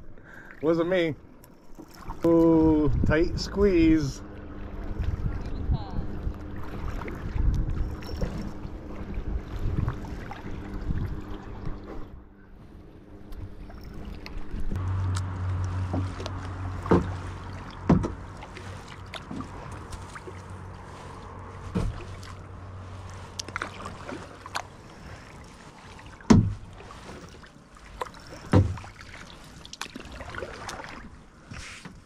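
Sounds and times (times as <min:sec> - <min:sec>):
low steady hum: 0:00.0 - 0:31.4
paddle dipping in water: 0:00.2 - 0:32.0
sharp paddle knocks: 0:17.8 - 0:18.2, 0:26.3 - 0:26.6.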